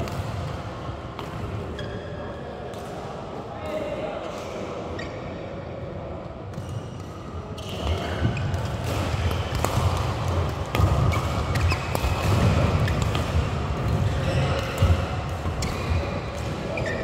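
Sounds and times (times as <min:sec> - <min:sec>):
racket hitting shuttlecock: 0:06.5 - 0:16.9.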